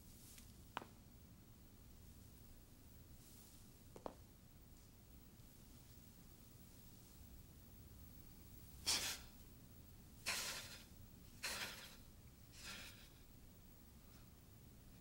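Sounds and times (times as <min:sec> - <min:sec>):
sharp forceful breaths: 0:08.8 - 0:09.3, 0:10.2 - 0:13.2.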